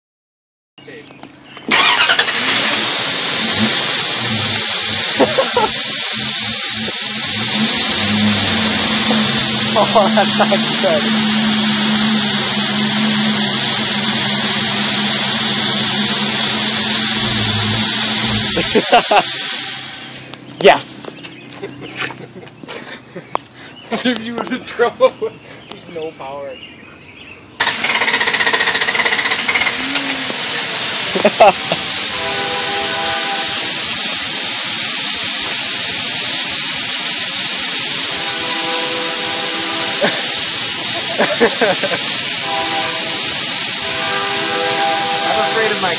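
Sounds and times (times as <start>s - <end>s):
engine hum: 0.8s - 45.9s
water spitting: 1.7s - 20.2s, 27.6s - 45.9s
exhaust hissing past plug: 1.7s - 20.4s, 27.6s - 45.9s.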